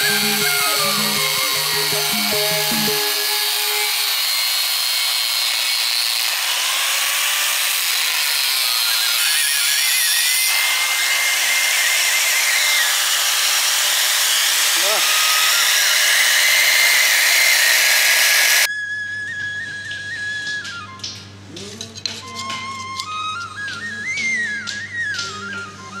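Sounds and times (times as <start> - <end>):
instrumental folk music: 0.0 - 4.2
angle grinder on steel: 0.0 - 18.7.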